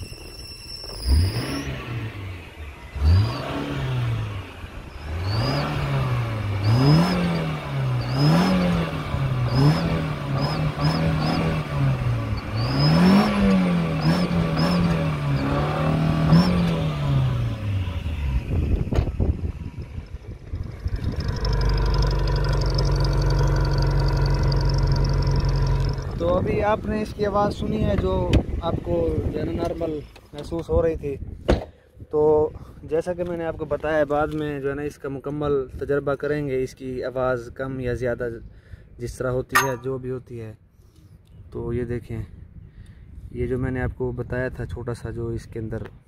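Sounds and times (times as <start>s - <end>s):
engine belt noise: 0.0s - 27.3s
small car engine revving: 0.8s - 26.3s.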